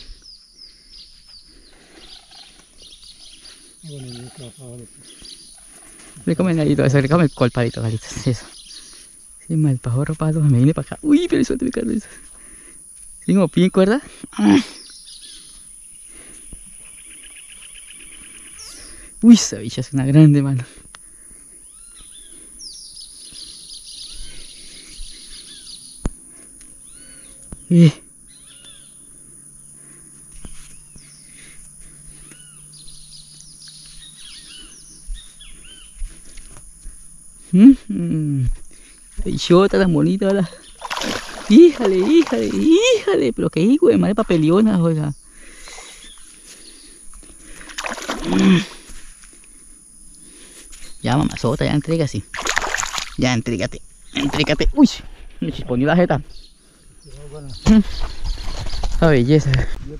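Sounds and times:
bird chattering trill: 28.3s - 29.0s
fish splashing at surface: 40.8s - 42.8s, 47.6s - 48.6s, 52.3s - 53.2s.

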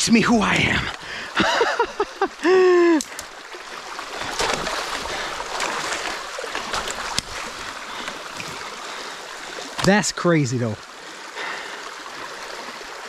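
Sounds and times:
man calling out: 0.0s - 1.0s
creek water rushing: 0.0s - 13.0s.

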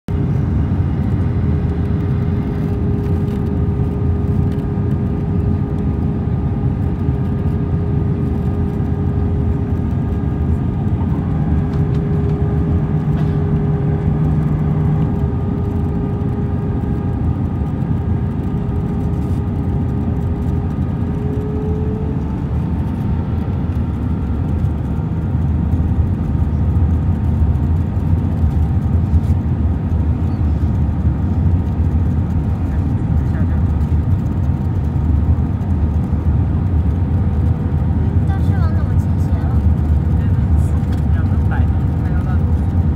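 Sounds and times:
steady hum: 0.1s - 34.6s
airplane cabin engine rumble: 0.1s - 42.9s.

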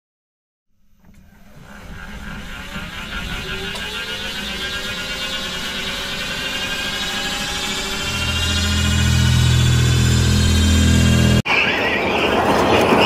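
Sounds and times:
low hum: 0.8s - 11.4s
electric motor whine rising: 1.2s - 11.4s.

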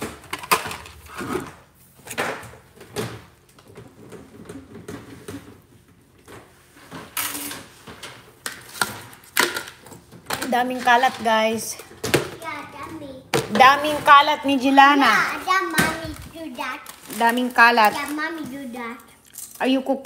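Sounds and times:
plastic toys clattering: 0.0s - 5.8s, 6.9s - 14.4s, 15.1s - 19.8s.

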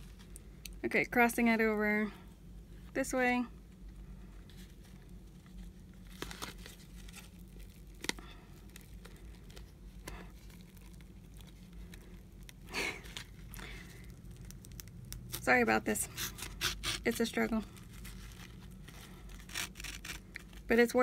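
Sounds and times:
ribbon and paper rustling: 4.3s - 21.0s.

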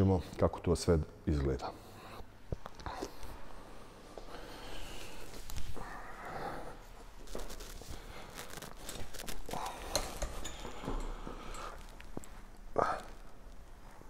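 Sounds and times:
clothing rustling: 4.8s - 14.0s
metallic clicks and clinks: 9.6s - 12.2s.

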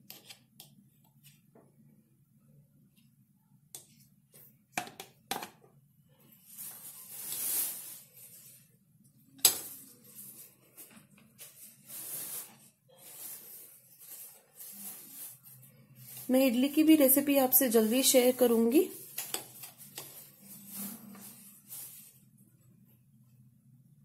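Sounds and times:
soft scraping and handling: 6.1s - 8.9s, 9.6s - 16.8s, 18.9s - 22.6s.

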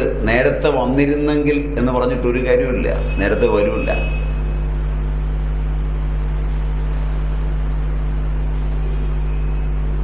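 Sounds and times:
speech: 0.0s - 4.2s
buzzing electrical hum: 0.0s - 10.0s.

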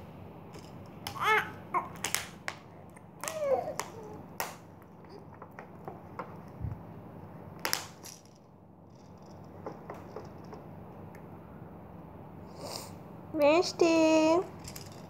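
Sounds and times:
child squealing: 3.2s - 4.2s.

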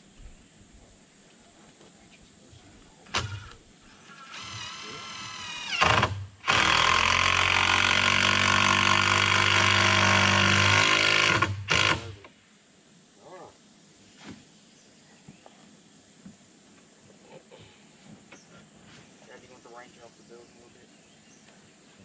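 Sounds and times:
power driver whining and hammering: 4.1s - 12.2s.

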